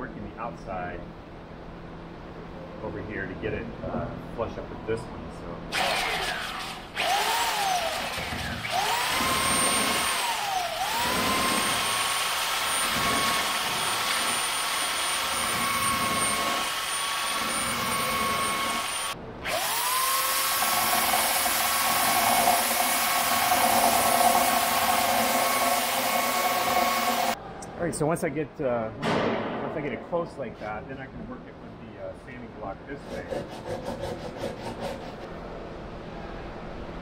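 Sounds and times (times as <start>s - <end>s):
belt sander whining: 5.8s - 27.4s.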